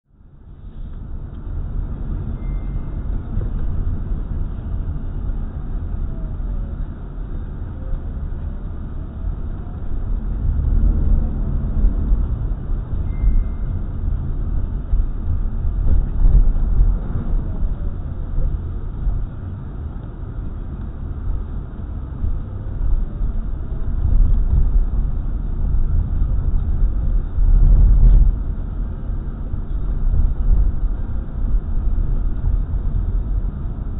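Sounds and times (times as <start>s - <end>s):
car engine and tyre rumble: 0.0s - 33.9s.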